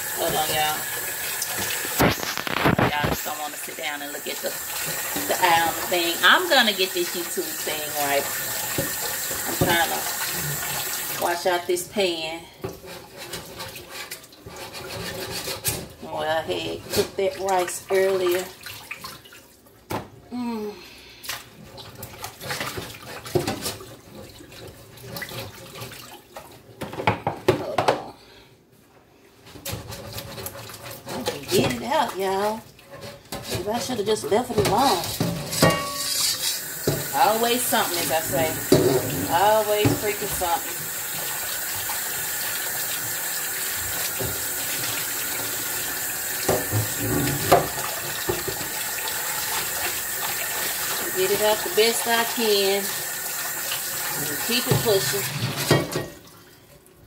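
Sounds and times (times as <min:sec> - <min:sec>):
tap running into sink: 0:08.3 - 0:11.2, 0:46.4 - 0:48.9
pan knocking and clanking: 0:34.5 - 0:37.1, 0:38.6 - 0:40.5.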